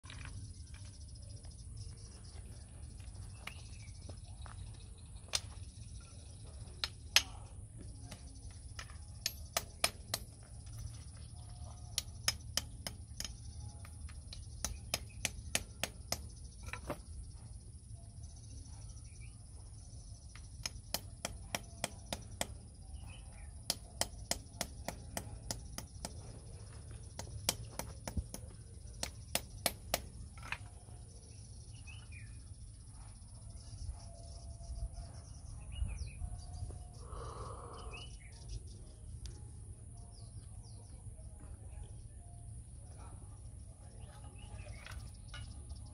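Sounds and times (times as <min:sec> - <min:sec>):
tapping on stone: 0:05.3 - 0:05.7, 0:06.7 - 0:11.0, 0:11.8 - 0:17.1, 0:20.3 - 0:30.7.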